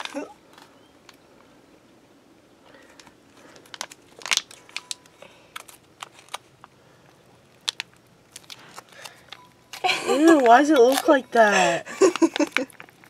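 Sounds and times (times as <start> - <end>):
foil pouch crinkling: 2.7 - 13.0.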